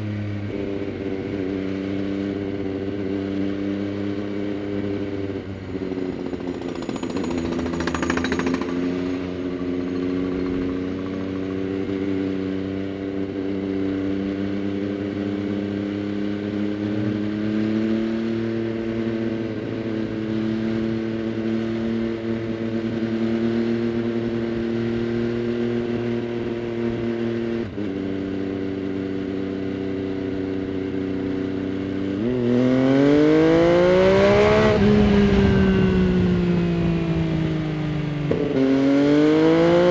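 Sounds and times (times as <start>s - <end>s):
motorcycle engine: 0.0s - 39.9s.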